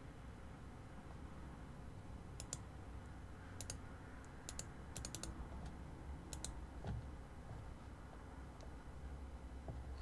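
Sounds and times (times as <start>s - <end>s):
keyboard keys clicking: 4.5s - 5.3s.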